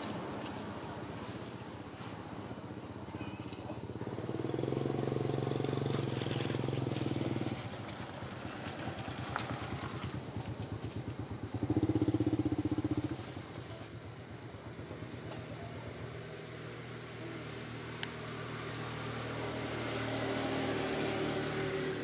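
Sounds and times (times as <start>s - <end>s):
small engine running: 4.0s - 13.5s, 17.4s - 22.0s.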